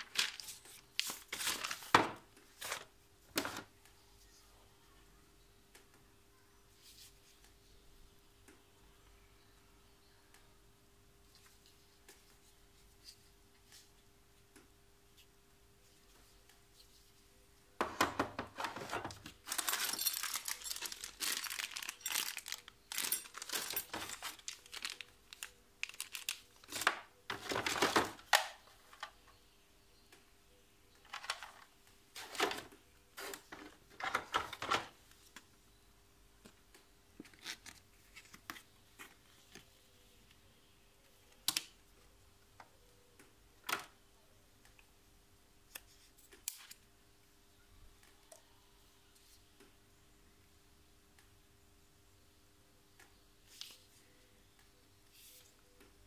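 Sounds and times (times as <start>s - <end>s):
packaging crinkling and rustling: 0.0s - 3.7s, 18.5s - 28.6s.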